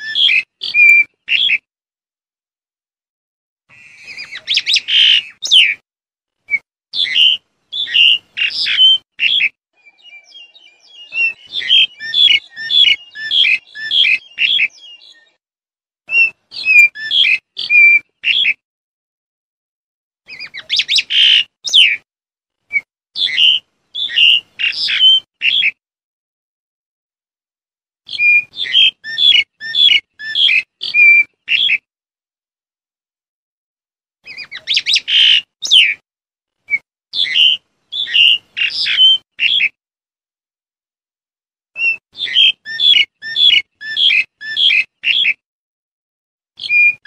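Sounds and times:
starling chattering and whistling: 0.0s - 1.6s, 3.7s - 5.8s, 6.5s - 15.4s, 16.1s - 18.6s, 20.3s - 22.0s, 22.7s - 25.7s, 28.1s - 31.8s, 34.3s - 36.0s, 36.7s - 39.7s, 41.8s - 45.4s, 46.6s - 47.0s.

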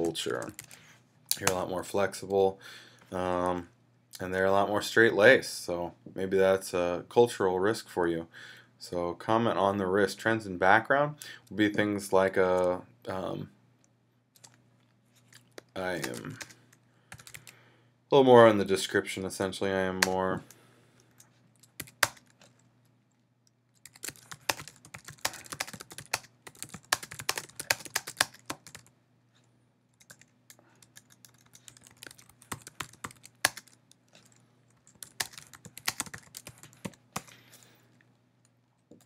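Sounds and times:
faint steady hum: 0.0s - 39.0s
typing on computer keyboard: 0.3s - 0.8s, 16.0s - 17.5s, 21.6s - 22.5s, 23.8s - 28.9s, 30.0s - 37.3s.

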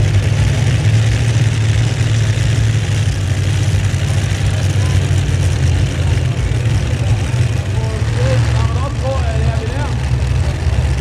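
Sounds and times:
tractor engine droning: 0.0s - 11.0s.

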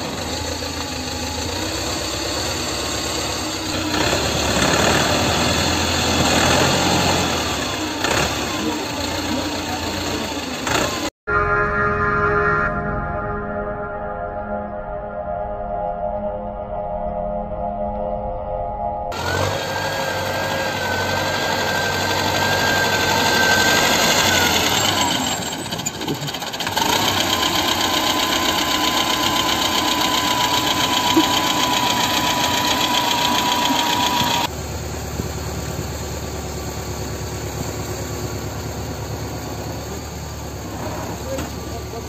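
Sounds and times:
tractor diesel engine running: 0.0s - 11.1s, 19.1s - 42.0s
high whine: 11.3s - 25.6s.

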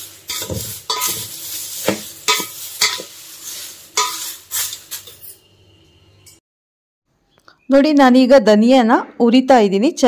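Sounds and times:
leaves rustling: 0.0s - 5.2s
metal spoon scraping metal bowl: 0.3s - 3.1s, 4.0s - 5.5s.

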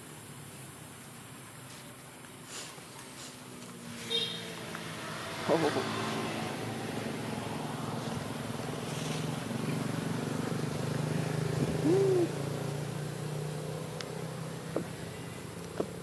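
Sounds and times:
baby monkey coo: 11.6s - 12.4s.

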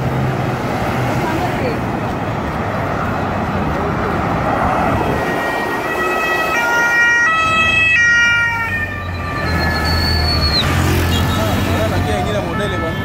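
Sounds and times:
cars and motorcycles driving past: 0.0s - 13.0s
two-tone siren: 4.9s - 13.0s.

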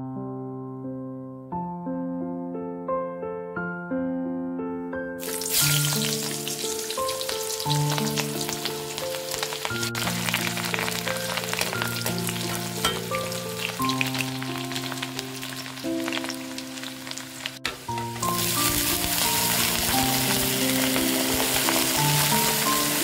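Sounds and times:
onion frying in hot oil: 5.2s - 23.0s.

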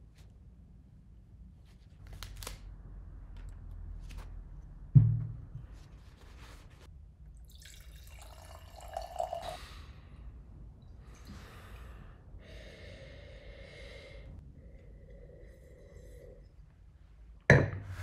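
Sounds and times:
liquid pouring into glass: 7.4s - 9.6s
breathing through the nose: 11.1s - 16.4s.

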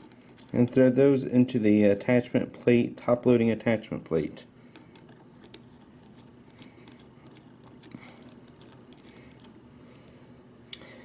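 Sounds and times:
metal spikes clicking: 4.9s - 9.6s.

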